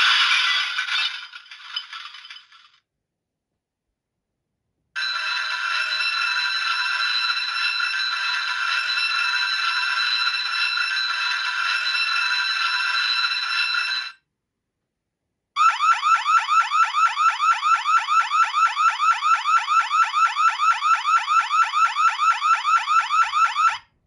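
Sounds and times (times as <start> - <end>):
steady electronic ringing: 5.0 - 14.1.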